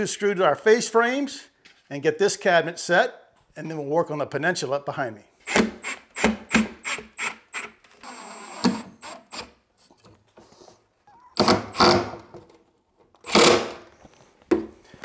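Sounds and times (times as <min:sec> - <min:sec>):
impact driver driving screws: 0:05.4 - 0:09.6, 0:11.4 - 0:12.5, 0:13.2 - 0:13.9.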